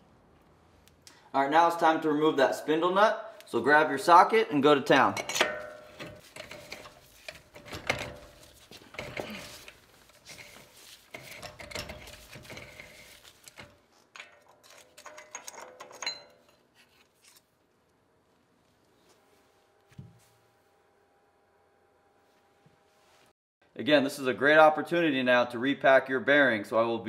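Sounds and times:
wrench metallic clicks and scrapes: 0:05.2 - 0:17.4.

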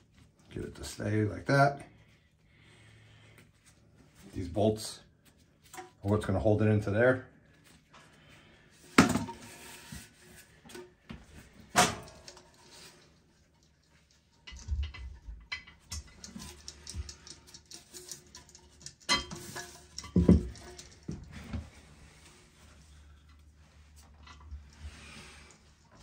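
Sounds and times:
small knocks and clatter: 0:08.9 - 0:26.0.

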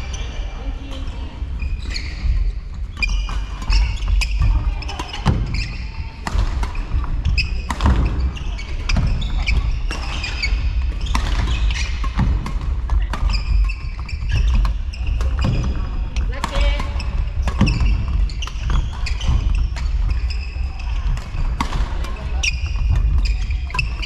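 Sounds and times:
shoes squeaking on court floor: 0:00.0 - 0:24.0.

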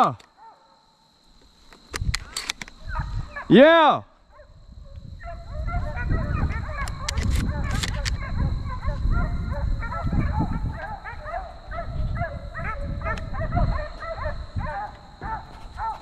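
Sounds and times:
hounds baying: 0:02.7 - 0:03.6, 0:04.2 - 0:16.0.

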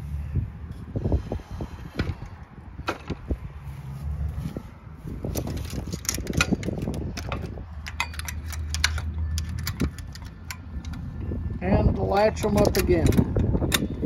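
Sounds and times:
metallic clicks and rattles: 0:05.2 - 0:11.2, 0:12.0 - 0:14.0.

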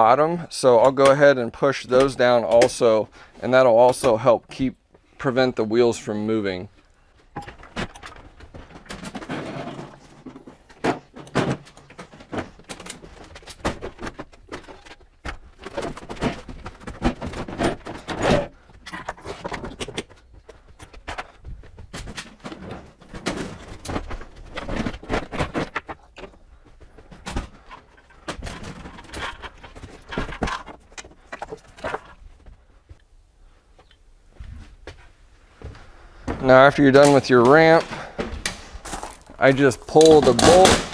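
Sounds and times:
footsteps on van floor: 0:33.8 - 0:39.4.

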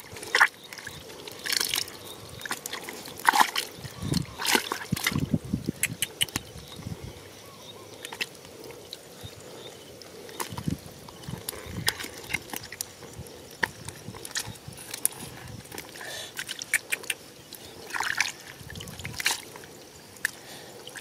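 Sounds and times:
muddy water sloshing and splashing: 0:00.0 - 0:21.0.

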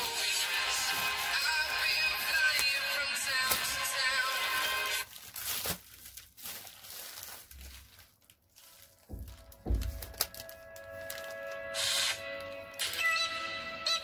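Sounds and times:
background music: 0:00.0 - 0:05.0, 0:09.2 - 0:14.0
plastic bag crinkling: 0:00.0 - 0:13.2
low thumps: 0:09.1 - 0:10.2.

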